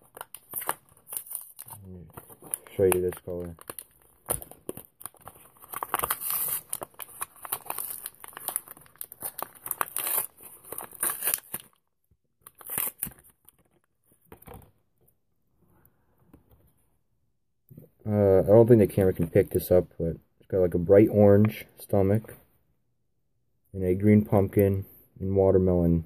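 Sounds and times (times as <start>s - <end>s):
plastic packet crinkling: 0.0s - 11.8s.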